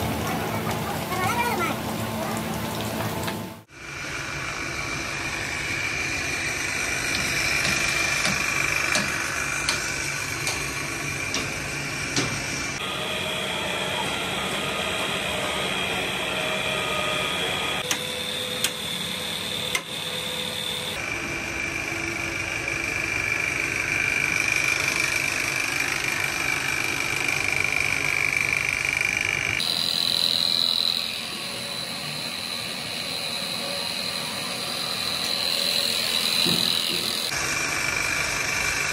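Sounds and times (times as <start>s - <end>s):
machinery high whine: 0.0s - 38.9s
sharp clicks and knocks: 7.1s - 10.7s, 11.3s - 12.5s.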